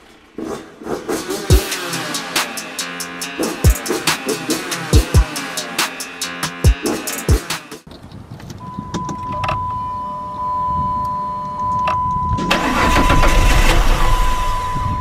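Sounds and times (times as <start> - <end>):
car engine starting and idling: 0.0 - 7.9, 12.4 - 15.0
loud rushing noise: 0.0 - 7.9
electronic warning chime: 8.6 - 15.0.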